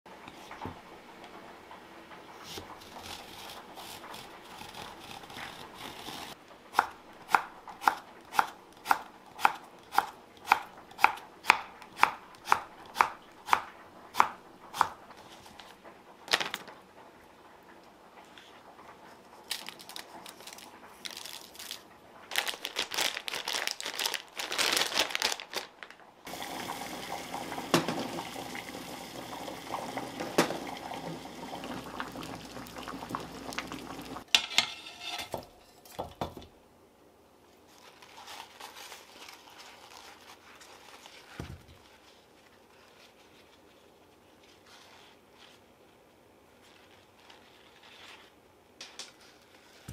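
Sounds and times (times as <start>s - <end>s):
plastic bag crinkling: 15.3s - 16.9s, 19.3s - 26.1s, 37.6s - 45.7s
water boiling in saucepan: 26.3s - 34.5s.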